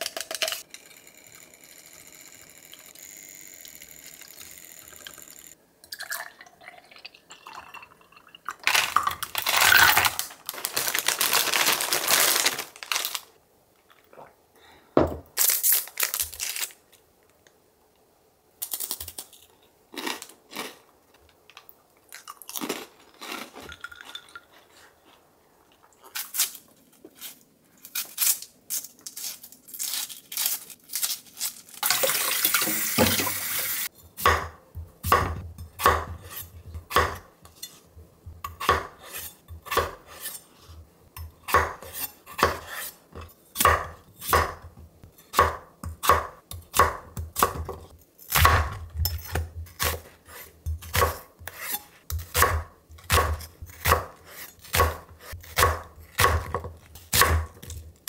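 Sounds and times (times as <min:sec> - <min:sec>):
snack wrapper crinkling: 0:08.6 - 0:13.4
tap running: 0:32.5 - 0:33.7
knife chopping on wooden board: 0:34.2 - 0:37.2, 0:38.5 - 0:40.0, 0:41.5 - 0:42.8, 0:43.6 - 0:44.6, 0:48.4 - 0:57.6.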